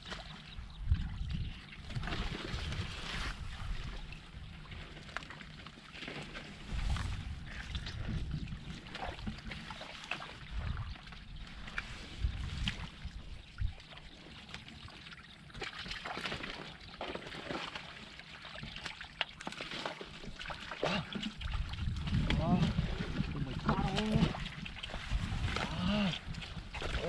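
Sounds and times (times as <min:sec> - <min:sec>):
water and mud sloshing: 0:00.0 - 0:27.0
wind buffeting microphone: 0:00.5 - 0:04.7, 0:06.6 - 0:09.5, 0:10.4 - 0:13.8, 0:21.4 - 0:27.0.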